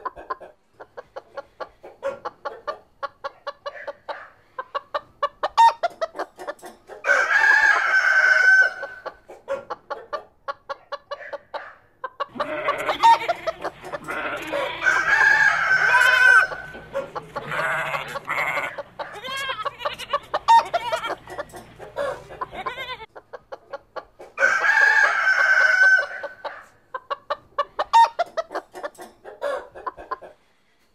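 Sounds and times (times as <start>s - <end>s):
chickens clucking: 0.0s - 30.9s
roosters crowing: 7.0s - 9.2s, 12.2s - 23.1s, 24.4s - 26.7s.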